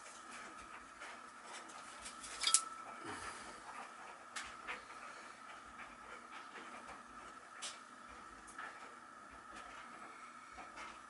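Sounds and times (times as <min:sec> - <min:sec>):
metal plate and screws clinking: 0:02.2 - 0:02.7.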